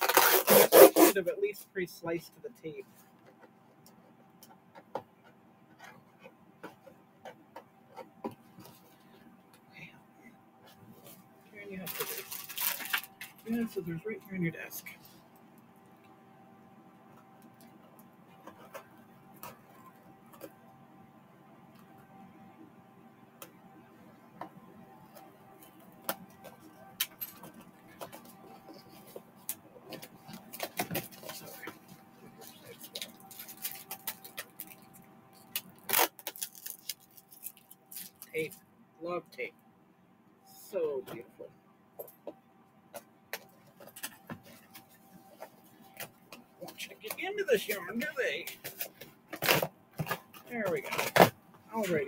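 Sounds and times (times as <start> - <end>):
scissors snipping packing tape: 0.0 - 1.2.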